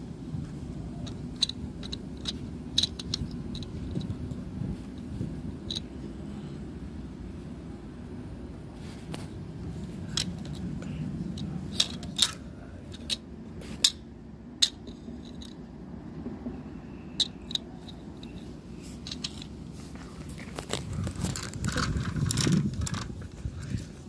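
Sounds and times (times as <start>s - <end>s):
handling noise rumble: 0.0s - 24.0s
plastic bricks clicking: 1.0s - 4.1s, 11.4s - 13.2s.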